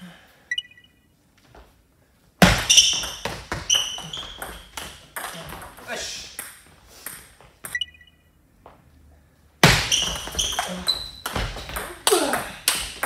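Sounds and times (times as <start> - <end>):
loud racket hit: 2.4 - 5.8, 9.6 - 13.0.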